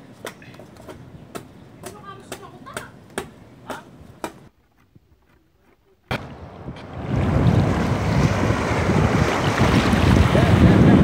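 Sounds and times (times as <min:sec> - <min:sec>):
wind buffeting microphone: 0:06.1 - 0:11.0
loud rushing surf: 0:06.8 - 0:11.0.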